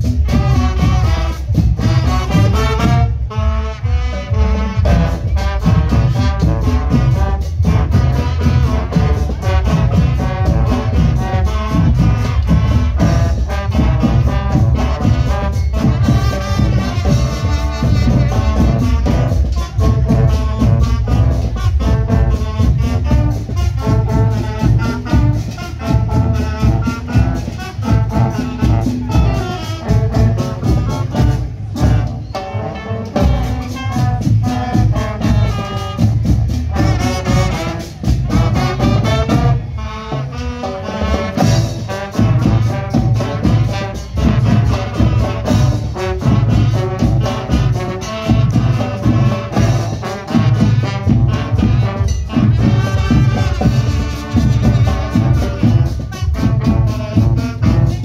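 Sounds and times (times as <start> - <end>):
marching band playing: 0.0 - 58.0.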